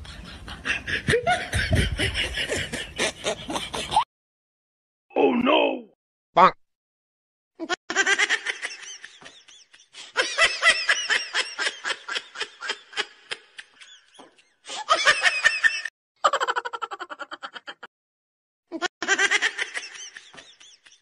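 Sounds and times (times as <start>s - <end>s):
people laughing: 0.0s - 4.0s, 7.9s - 17.9s, 19.0s - 21.0s.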